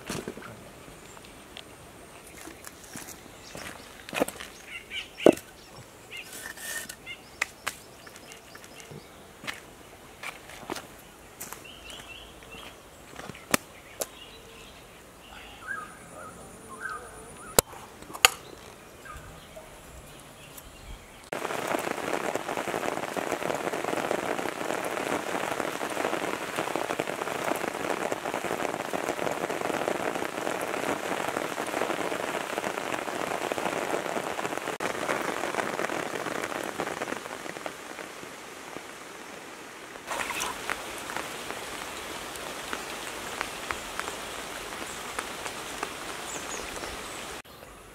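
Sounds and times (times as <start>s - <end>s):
heavy rain pouring: 21.3s - 47.4s.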